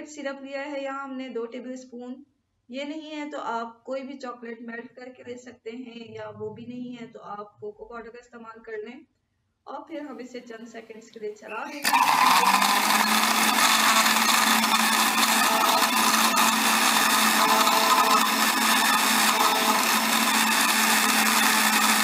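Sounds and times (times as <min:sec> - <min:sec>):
blender motor running: 0:11.5 - 0:22.0.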